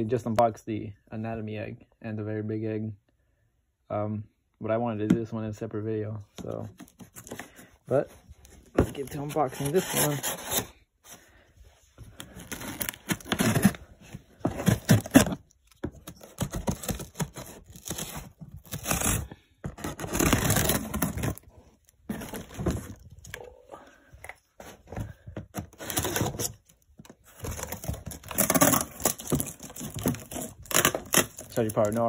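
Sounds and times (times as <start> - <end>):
knife cutting tape and cardboard: 8.9 - 10.7, 12.2 - 13.8, 14.5 - 21.4, 27.4 - 32.0.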